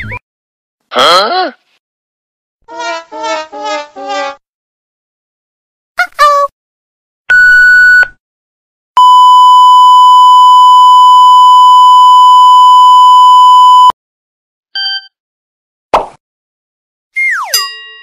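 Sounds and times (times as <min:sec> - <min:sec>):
short beep: 0:09.0 - 0:13.9
long censor bleep: 0:09.0 - 0:14.0.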